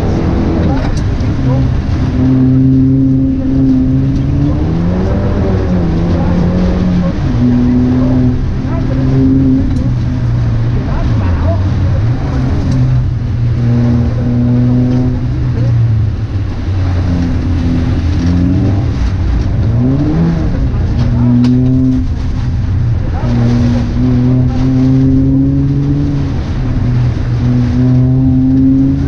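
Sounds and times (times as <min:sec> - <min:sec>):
car engine under hard throttle: 0:00.0 - 0:29.0.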